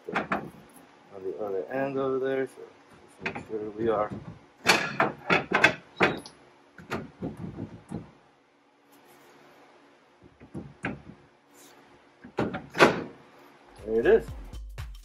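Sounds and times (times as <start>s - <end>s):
metal clunks and scrapes: 3.0s - 8.2s.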